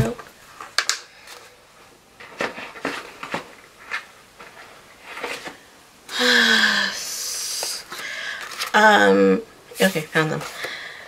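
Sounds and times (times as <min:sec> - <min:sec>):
paper rustling: 0:02.2 - 0:05.6, 0:08.0 - 0:08.8.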